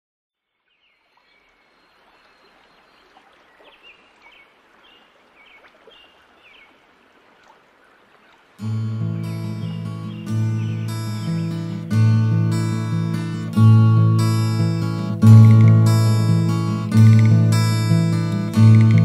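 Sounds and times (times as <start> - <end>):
bird chirps: 0.5 - 6.8, 9.5 - 11.6
running water: 0.6 - 11.8, 14.2 - 19.0.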